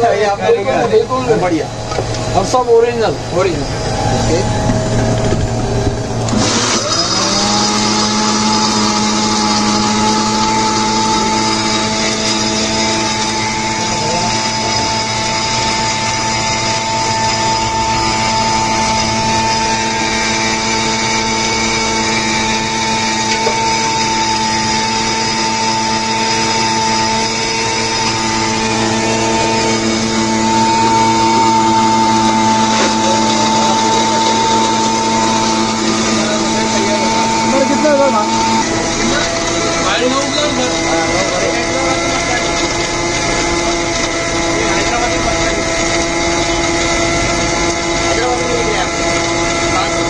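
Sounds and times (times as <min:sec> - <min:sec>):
mixer-grinder motor whine: 0:00.0 - 0:50.0.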